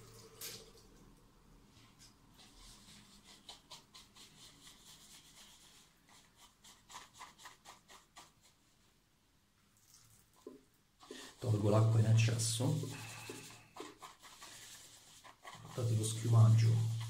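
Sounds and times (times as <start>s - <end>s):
shaving brush swishing in bowl: 11.0s - 17.0s.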